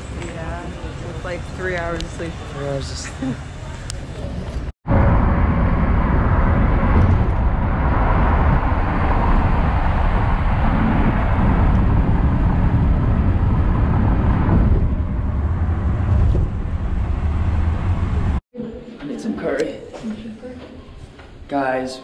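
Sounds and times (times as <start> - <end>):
car road noise at highway speed: 3.9 - 18.4.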